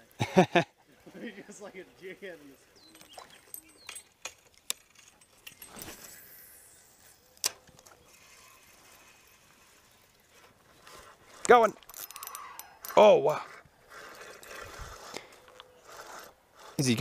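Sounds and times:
fishing reel clicks: 11.4s - 13.0s.

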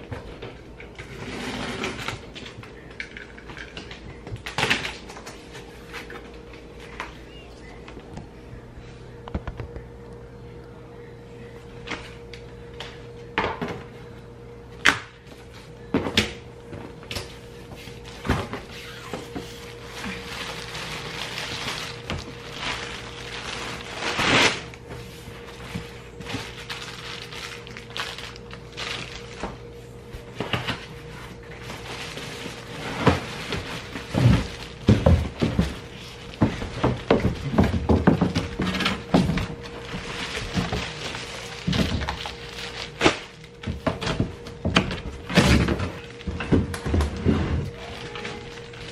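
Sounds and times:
faint steady hum: 0.0s - 48.9s
cardboard and packing rustling: 15.2s - 48.9s
plastic wrap rustling: 17.0s - 48.9s.

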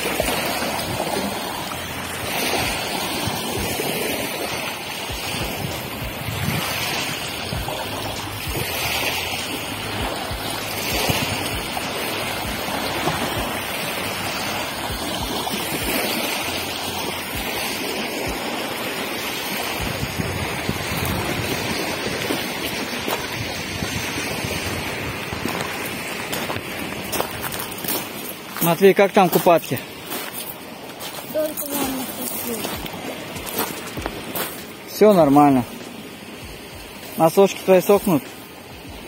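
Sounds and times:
wind buffeting microphone: 0.0s - 16.0s, 18.2s - 28.6s
waves lapping on pebbles: 0.0s - 39.0s.

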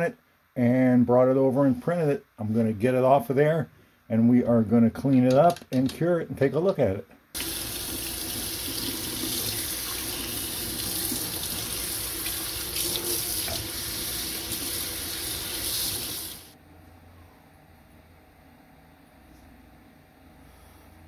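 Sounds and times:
faucet water splashing into sink: 7.4s - 16.5s
faint low hum: 16.6s - 21.0s.

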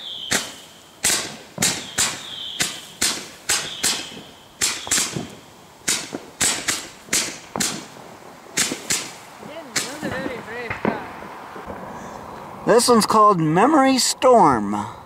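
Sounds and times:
firework pops: 0.1s - 11.8s.

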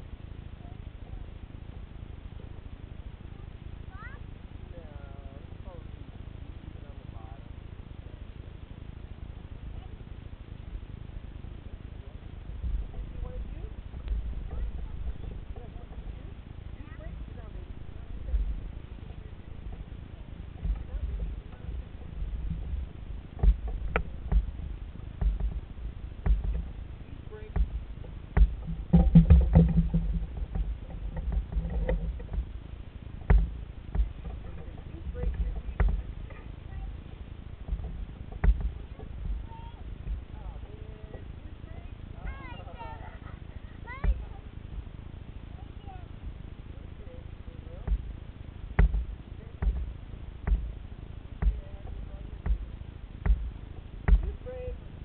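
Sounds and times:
low rumble: 0.0s - 55.0s
knocks on plastic kayak hull: 22.4s - 26.7s, 27.5s - 32.6s, 33.2s - 36.1s, 37.6s - 39.4s, 48.8s - 50.8s, 51.4s - 54.4s.

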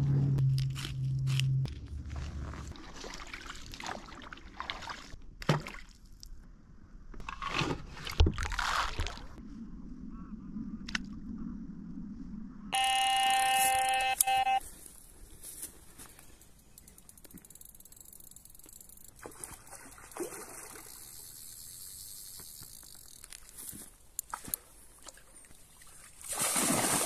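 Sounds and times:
bite alarm high tone: 12.8s - 14.6s.

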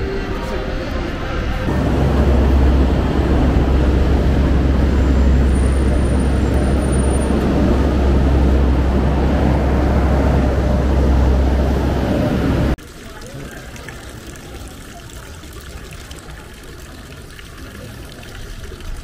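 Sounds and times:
loud outdoor rumble: 0.0s - 12.8s.

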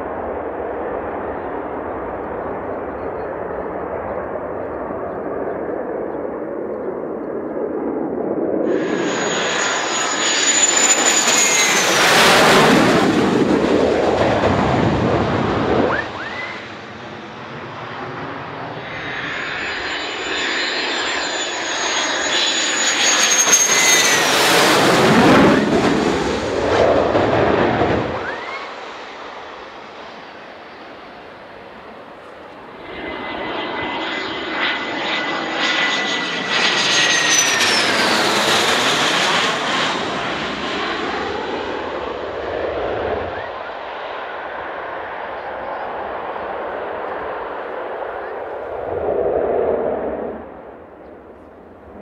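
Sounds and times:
jet passing with roar: 0.0s - 52.0s.

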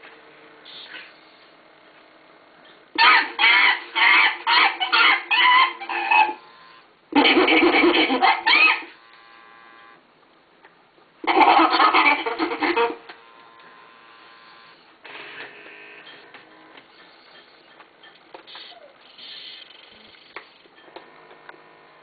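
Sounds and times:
toy chimpanzee hooting calls: 3.0s - 6.4s, 7.2s - 9.0s, 11.2s - 13.1s, 18.5s - 20.1s.

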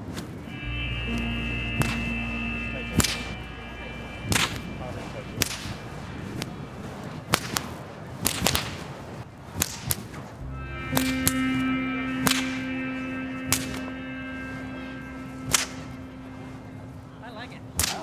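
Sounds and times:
whip cracking: 7.3s - 8.9s, 9.5s - 10.3s.

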